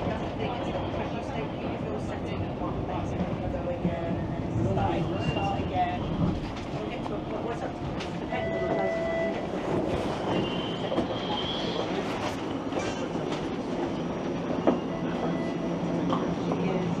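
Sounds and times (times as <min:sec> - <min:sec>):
streetcar rumbling on rails: 0:00.0 - 0:17.0
faint high wheel squeal: 0:10.3 - 0:12.0.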